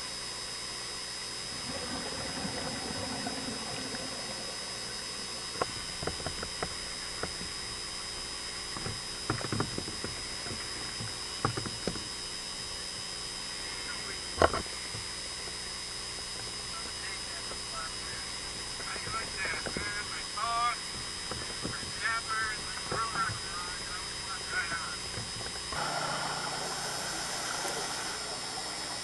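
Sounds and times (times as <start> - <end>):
sharp underwater clicks and knocks: 5.5 - 7.6, 8.7 - 12.2, 14.4 - 15.1, 20.9 - 22.0
underwater hiss: 25.8 - 29.0.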